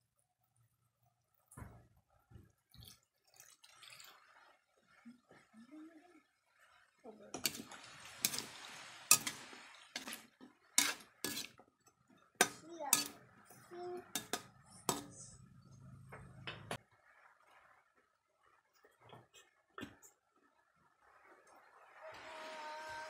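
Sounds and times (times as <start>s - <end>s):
metal spatula clanking on a wok: 7.4s - 8.5s, 9.1s - 9.4s, 10.8s - 11.6s, 12.4s - 13.2s, 14.1s - 15.3s.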